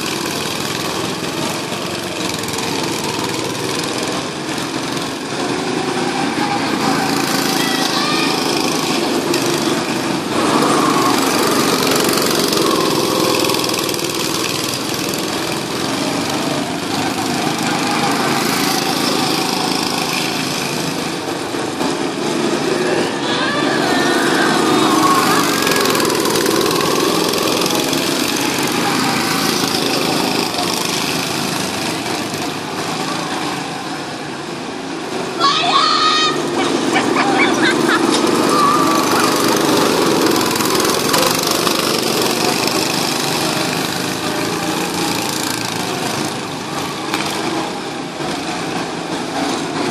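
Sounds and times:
go-kart engines running: 0.0s - 49.9s.

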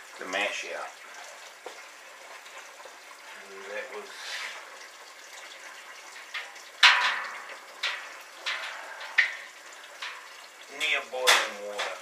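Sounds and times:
faint running liquid: 0.0s - 12.0s
utensils clanking on metal pot: 6.1s - 12.0s.

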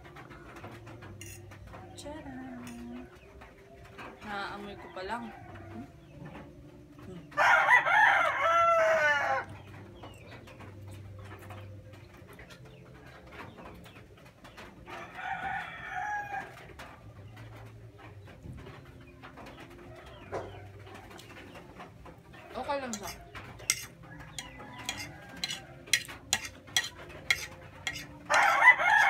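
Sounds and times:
rooster crowing: 7.4s - 9.5s, 15.0s - 16.6s, 24.1s - 26.1s, 27.9s - 29.0s
fork clicking against bowl: 22.9s - 28.5s.

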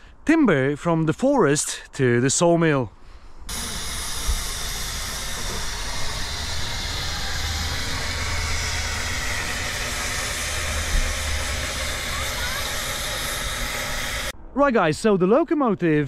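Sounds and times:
steady low rumble: 2.9s - 15.2s
steam hissing: 3.5s - 14.4s.

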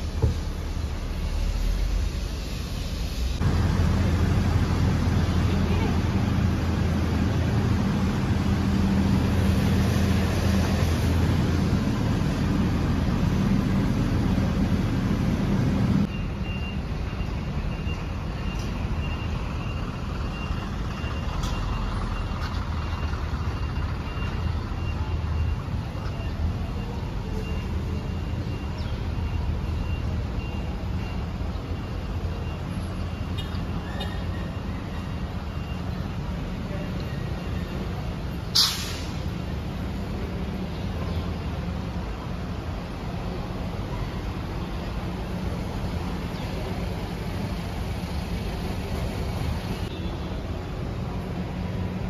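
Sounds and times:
vehicle engine idling: 0.0s - 16.2s
street noise: 0.0s - 52.0s
traffic rumble of vehicle engines: 0.0s - 52.0s.

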